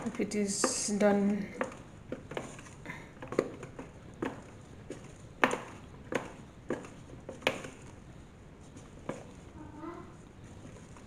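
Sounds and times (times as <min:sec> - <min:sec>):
wooden spoon stirring dough: 0:00.0 - 0:11.0.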